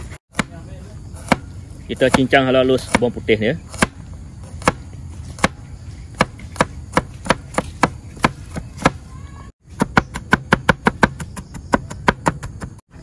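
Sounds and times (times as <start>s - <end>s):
knife chopping on cutting board: 1.2s - 4.0s, 6.2s - 9.0s, 9.8s - 12.8s.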